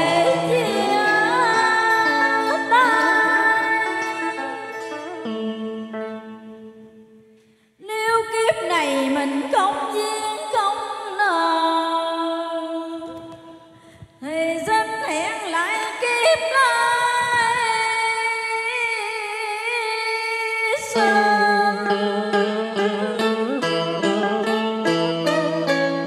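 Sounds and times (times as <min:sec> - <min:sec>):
woman singing with vibrato: 0:00.0 - 0:05.9, 0:07.8 - 0:13.3, 0:14.2 - 0:24.5.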